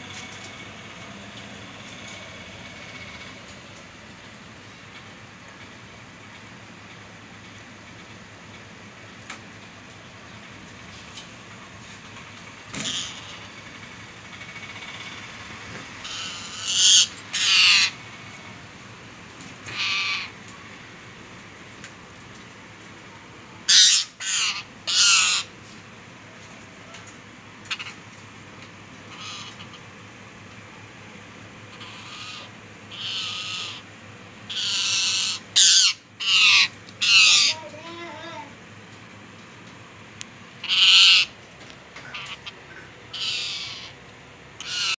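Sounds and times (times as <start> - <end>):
parakeet screeching: 12.7 - 13.6, 16.0 - 18.0, 19.6 - 20.4, 23.6 - 25.5, 27.7 - 28.0, 29.1 - 29.8, 31.7 - 33.9, 34.5 - 38.3, 40.6 - 41.4, 42.0 - 44.0, 44.6 - 45.0.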